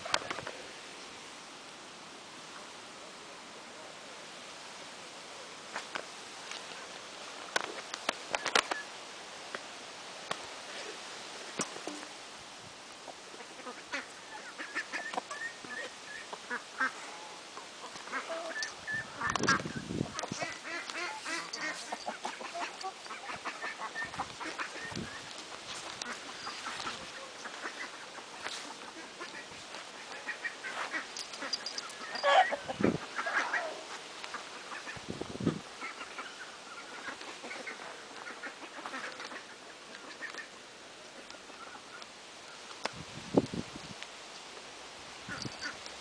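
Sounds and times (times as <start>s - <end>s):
chickens clucking: 13.1s - 17.1s, 17.8s - 40.6s.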